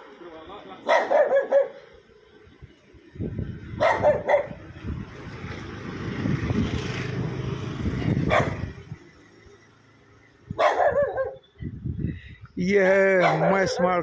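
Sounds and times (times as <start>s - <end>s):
small dog barking: 0.8s - 1.8s, 3.8s - 4.6s, 8.3s - 8.6s, 10.6s - 11.4s, 13.2s - 14.0s.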